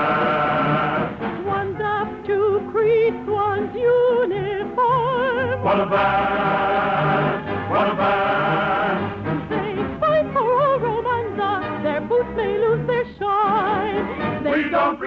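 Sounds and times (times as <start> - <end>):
studio orchestra: 0.0 - 15.0
person singing with wide vibrato: 14.4 - 15.0.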